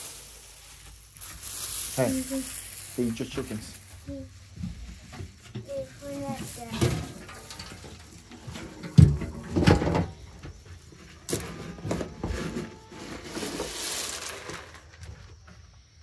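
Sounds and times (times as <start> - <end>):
pellets pouring: 0.0 - 8.3, 11.3 - 15.0
scoop digging into feed pellets: 12.9 - 14.8.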